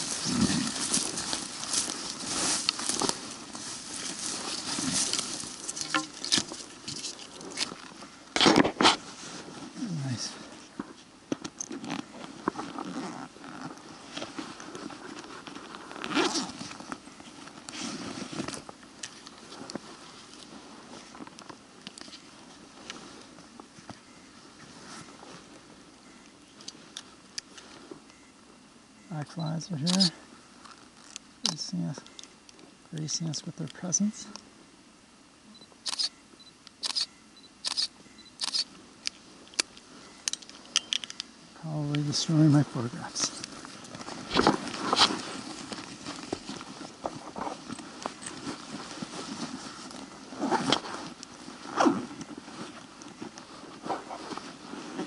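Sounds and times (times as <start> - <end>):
clothing and gear rustling: 0.0 - 28.1, 38.4 - 55.0
camera shutter clicks: 35.8 - 36.1, 36.8 - 38.7.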